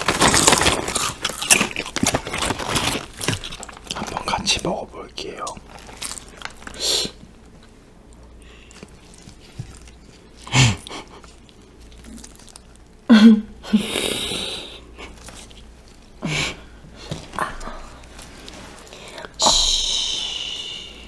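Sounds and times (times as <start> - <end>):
close chewing and crunching: 0.0 - 13.1, 14.7 - 16.2.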